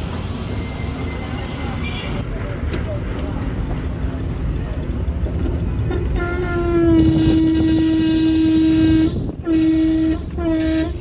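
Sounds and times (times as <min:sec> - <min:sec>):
low rumble of car and traffic: 0:00.0 - 0:11.0
car horn honking: 0:05.9 - 0:11.0.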